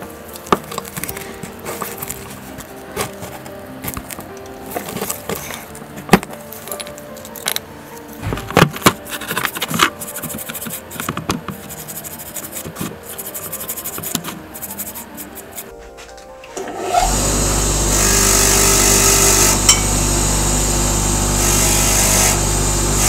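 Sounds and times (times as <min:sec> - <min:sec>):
background music: 0:00.0 - 0:23.0
toothbrush scrubbing wet metal parts: 0:08.9 - 0:15.7.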